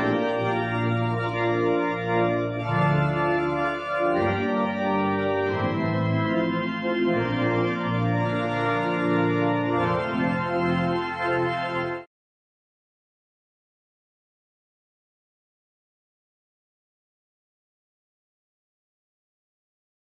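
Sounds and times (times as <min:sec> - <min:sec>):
pipe organ chords: 0:00.0 - 0:12.1.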